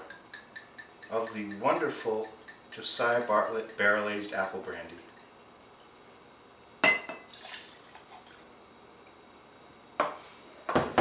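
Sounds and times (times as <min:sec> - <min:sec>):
glass clink: 0:00.0 - 0:02.7, 0:06.8 - 0:07.3
faint liquid splash: 0:07.2 - 0:08.4.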